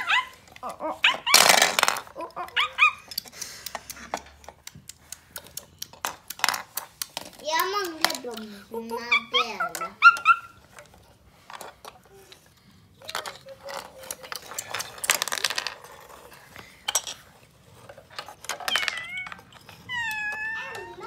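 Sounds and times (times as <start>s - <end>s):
plastic toys clicking and knocking: 0.0s - 21.0s
child's voice: 7.4s - 10.0s, 20.0s - 21.0s.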